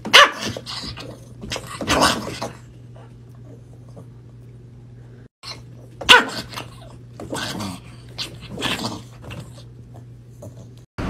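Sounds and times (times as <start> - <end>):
small dog yapping: 0.0 - 2.4, 5.4 - 7.5
low steady hum: 0.1 - 10.9.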